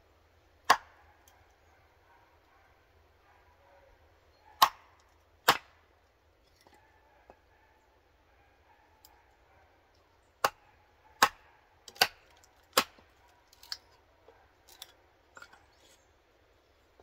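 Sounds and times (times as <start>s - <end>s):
split wood pieces clattering: 11.9s - 14.0s, 14.6s - 16.0s.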